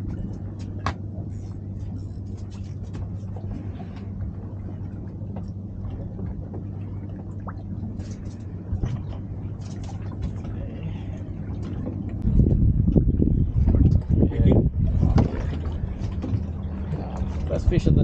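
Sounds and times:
low mechanical hum: 0:00.0 - 0:18.0.

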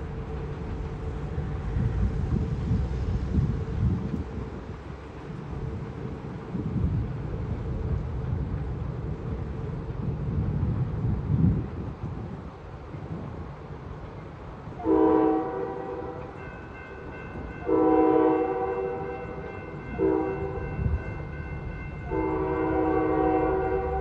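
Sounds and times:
train rumbling: 0:00.0 - 0:24.0
locomotive air horn blasts: 0:14.8 - 0:16.4, 0:17.6 - 0:20.8, 0:22.0 - 0:24.0.

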